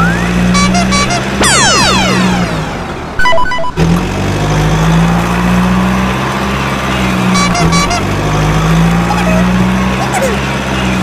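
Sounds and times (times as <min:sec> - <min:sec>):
stepped electronic beeps: 0:00.0 - 0:02.5, 0:03.2 - 0:03.8
repeated high beeps: 0:00.0 - 0:02.6, 0:03.2 - 0:03.8
low vehicle drone: 0:00.0 - 0:11.0.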